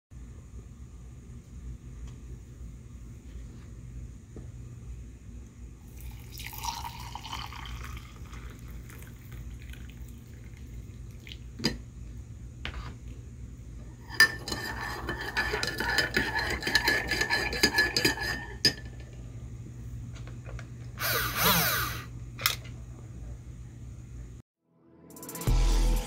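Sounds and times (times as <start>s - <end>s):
spoon clinking in a ceramic mug: 14.1s - 19.0s.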